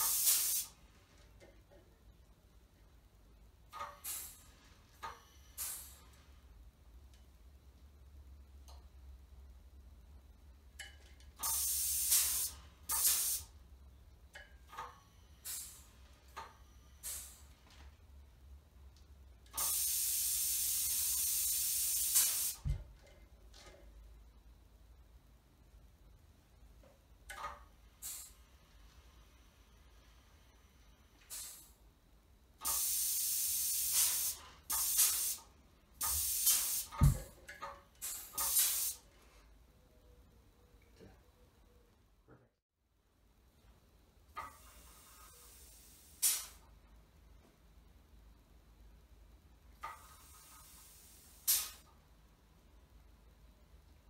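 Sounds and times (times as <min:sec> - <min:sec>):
compressed air hissing bursts: 0:00.0 - 0:00.8, 0:03.8 - 0:06.2, 0:11.4 - 0:13.6, 0:15.2 - 0:16.0, 0:16.7 - 0:17.6, 0:19.5 - 0:22.8, 0:27.9 - 0:31.8, 0:32.6 - 0:37.3, 0:37.9 - 0:39.1, 0:44.4 - 0:46.7, 0:49.9 - 0:52.0
low thump: 0:37.0 - 0:37.4.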